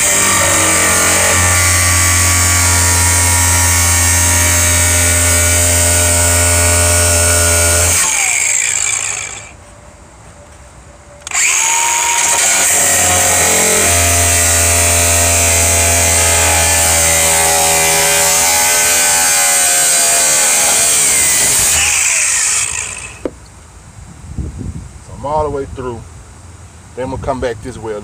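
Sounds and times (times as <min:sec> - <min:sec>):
angle grinder cutting metal: 0:00.0 - 0:09.6, 0:11.2 - 0:23.3.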